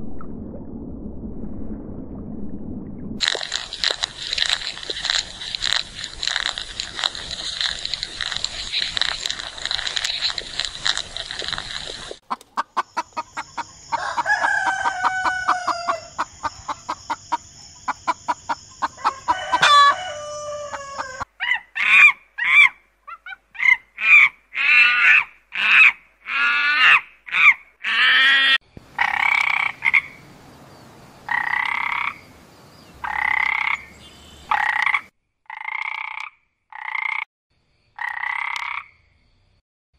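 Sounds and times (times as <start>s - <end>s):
frog croaking: 3.2s - 22.8s, 23.6s - 30.3s, 31.3s - 32.3s, 33.0s - 33.9s, 34.5s - 37.2s, 38.0s - 39.0s
chickens clucking: 4.4s - 21.3s
rooster crowing: 13.9s - 16.2s, 18.9s - 21.3s.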